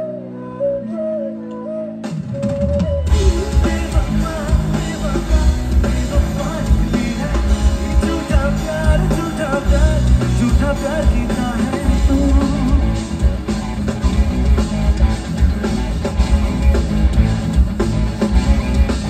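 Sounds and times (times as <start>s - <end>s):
live rock band playing: 0.0s - 19.0s
person singing: 3.1s - 13.2s.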